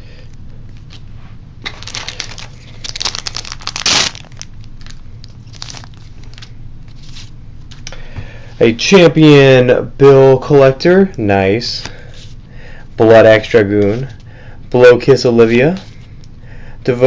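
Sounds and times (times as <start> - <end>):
foil wrapper crinkling and tearing: 1.6 - 7.2.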